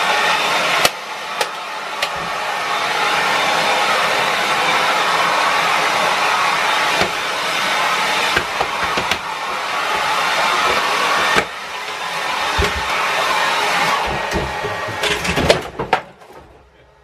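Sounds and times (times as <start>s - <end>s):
hair dryer blowing: 0.0s - 15.6s
knocks and bumps of dryer: 8.3s - 9.3s, 12.4s - 13.1s, 13.9s - 16.6s.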